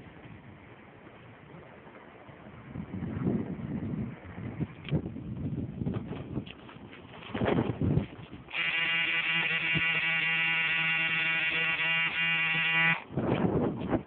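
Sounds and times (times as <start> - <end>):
wind rumbling on microphone: 0.0 - 8.8, 13.0 - 14.0
steady even-pitched buzz: 7.6 - 14.0.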